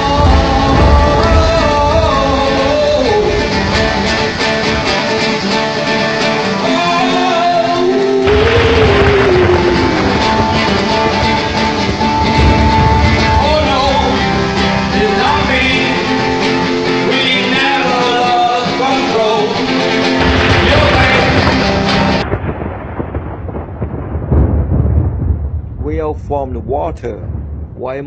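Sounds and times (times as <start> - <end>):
person singing: 0.0 - 5.1, 6.5 - 11.6, 12.4 - 22.1
live rock music with guitar: 0.0 - 22.9
quieter dull sound: 24.2 - 28.0.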